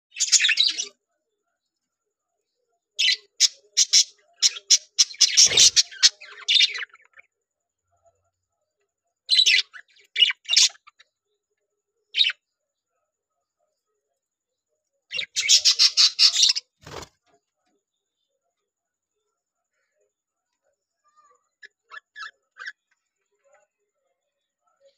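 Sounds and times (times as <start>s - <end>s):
budgerigars chirping: 3.0s - 6.8s, 15.1s - 16.7s.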